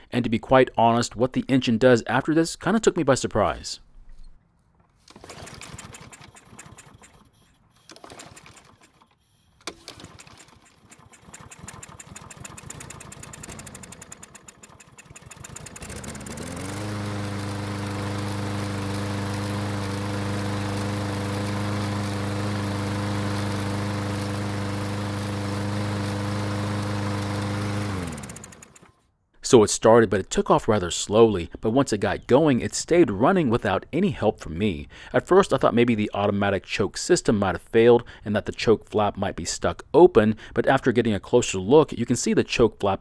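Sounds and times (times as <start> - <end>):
lawn mower engine sputtering: 5.0 - 7.3, 7.9 - 29.0.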